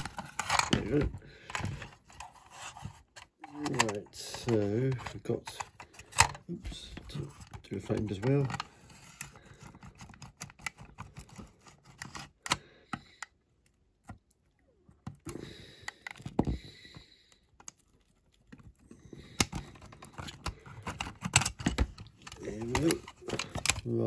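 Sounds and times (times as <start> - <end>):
screwdriver clicking and scraping metal: 0.0 - 6.4, 7.3 - 12.6, 18.4 - 24.0.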